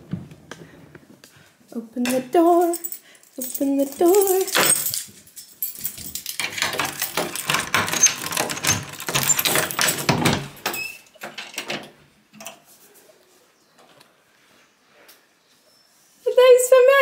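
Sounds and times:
knocks clatter and rustling: 2.1s - 12.7s
door opening: 6.3s - 12.6s.

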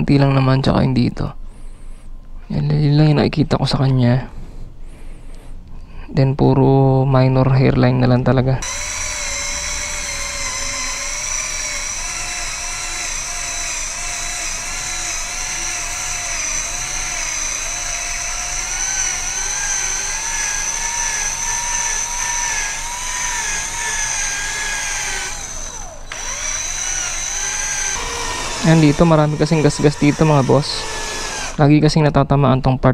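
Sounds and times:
cordless drill motor whining: 8.6s - 31.8s.

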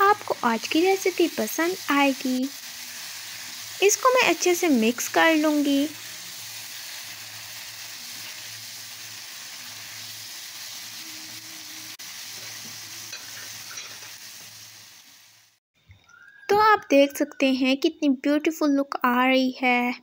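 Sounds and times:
meat sizzling in oil: 0.0s - 15.6s.

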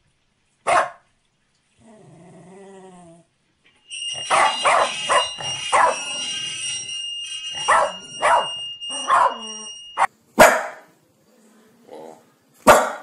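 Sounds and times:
dog barking: 0.6s - 1.0s, 4.3s - 6.0s, 7.7s - 9.6s, 10.4s - 10.9s, 12.6s - 13.0s
steady high-pitched tone: 3.7s - 10.1s.

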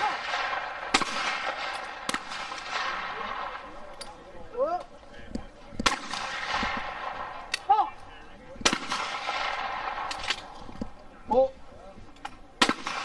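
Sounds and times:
faint distant gunshot: 0.0s - 3.9s, 5.8s - 7.6s, 8.6s - 10.6s, 12.6s - 13.0s
shotgun shots echoing: 0.0s - 4.3s, 5.8s - 7.7s, 8.5s - 11.0s, 12.6s - 13.0s.

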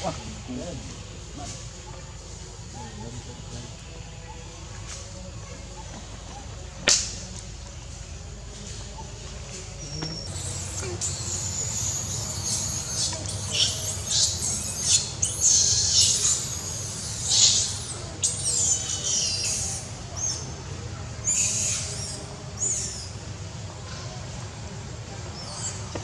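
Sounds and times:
young monkey screaming: 10.2s - 20.4s, 21.2s - 23.1s.

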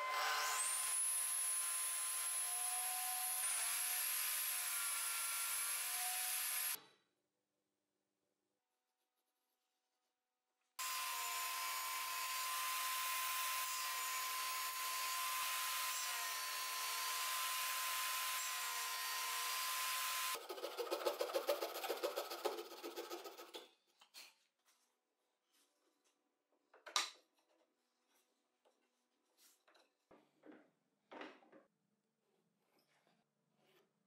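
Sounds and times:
table saw whining: 0.0s - 6.8s, 10.8s - 20.4s
rasping of wood on saw blade: 20.4s - 23.6s.

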